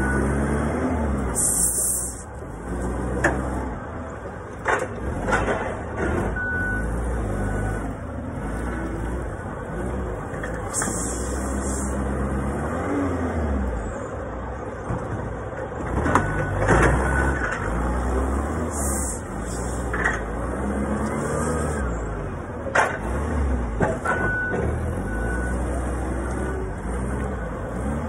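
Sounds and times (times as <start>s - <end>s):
short beeps: 0.0s - 0.4s, 6.4s - 7.9s, 24.0s - 25.7s
forklift engine revving: 0.0s - 4.0s, 4.8s - 13.9s, 15.9s - 28.0s.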